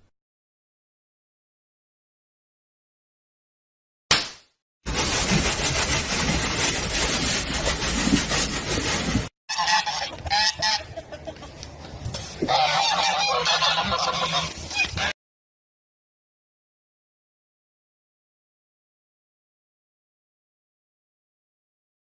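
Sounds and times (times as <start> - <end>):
scratchy rustling: 4.9 - 9.3
geese honking: 9.5 - 11.6, 12.4 - 15.1.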